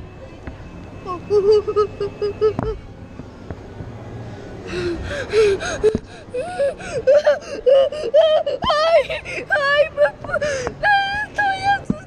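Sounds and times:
child gasping and whimpering: 4.7 - 11.0.

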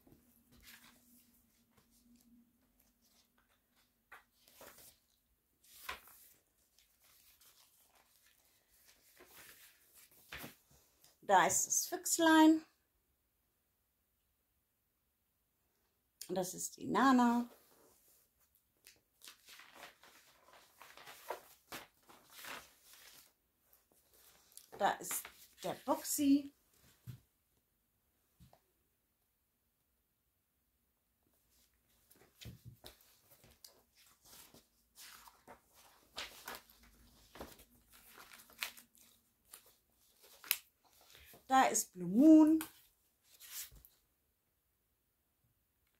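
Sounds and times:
pages rustling: 0.5 - 11.2, 17.5 - 27.2, 31.5 - 41.5, 42.2 - 44.0.

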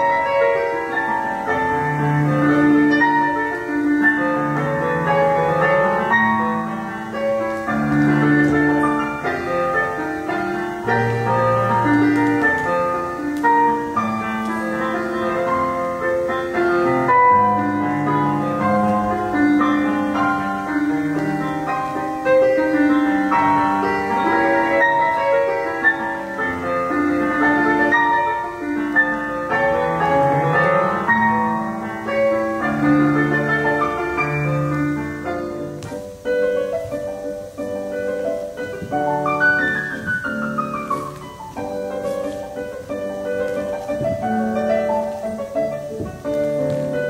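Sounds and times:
solo classical piano music: 0.0 - 47.0.

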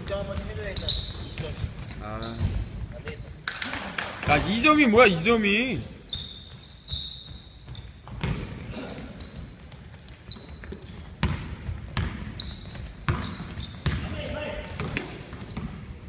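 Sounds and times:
sneaker squeaks on floor: 0.1 - 3.6, 5.7 - 16.0
basketball bouncing on hardwood: 7.3 - 8.7, 9.6 - 15.9.

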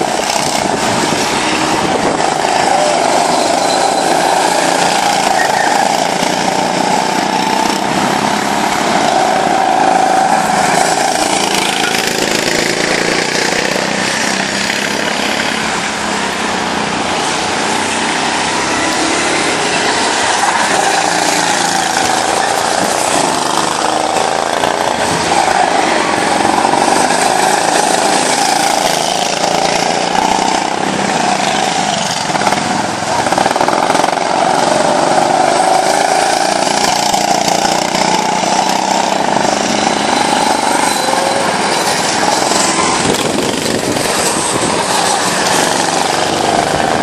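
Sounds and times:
go-kart engines buzzing: 0.0 - 47.0.

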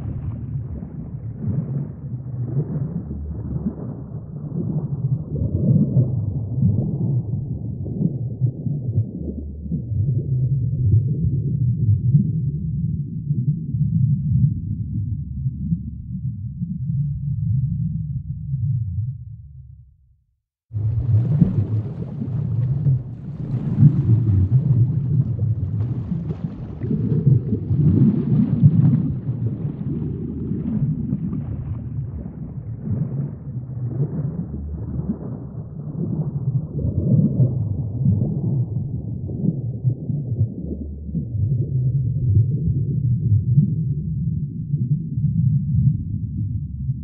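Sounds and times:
crackly fizz: 0.0 - 10.3, 20.7 - 41.8
aquarium water gurgling: 0.0 - 12.4, 20.8 - 43.6.

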